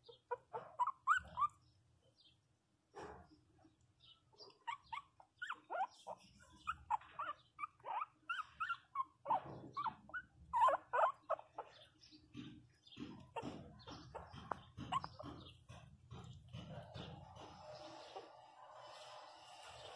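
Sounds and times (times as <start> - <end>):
puppy whimpering: 0.0 - 1.7, 4.4 - 11.9, 13.2 - 15.6.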